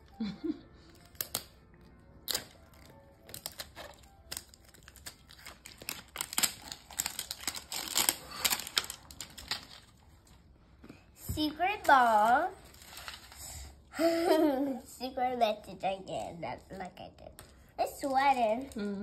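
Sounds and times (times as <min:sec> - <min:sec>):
plastic wrapping crinkling and tearing: 0:00.8 - 0:10.6, 0:11.7 - 0:13.9.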